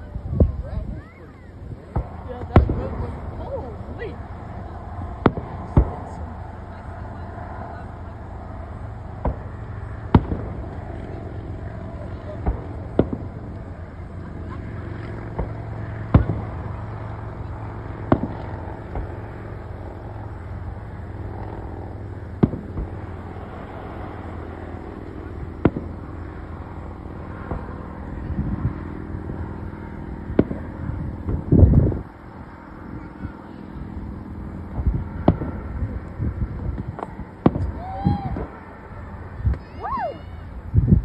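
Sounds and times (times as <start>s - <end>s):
fireworks bangs: 0.2s - 8.2s, 9.1s - 20.6s, 22.4s - 24.4s, 25.3s - 26.4s, 27.2s - 28.7s, 30.2s - 32.0s, 34.6s - 38.7s.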